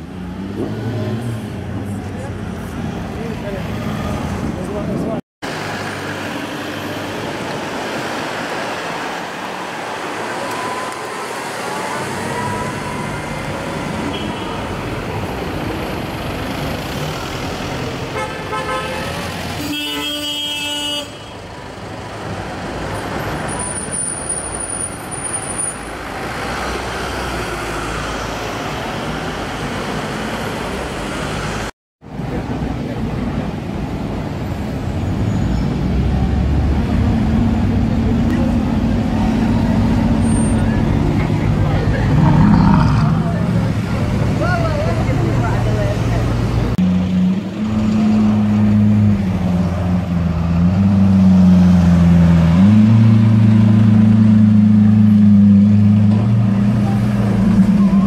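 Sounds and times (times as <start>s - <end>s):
city street traffic: 0.0s - 58.0s
car horn: 14.0s - 14.8s, 18.1s - 21.4s.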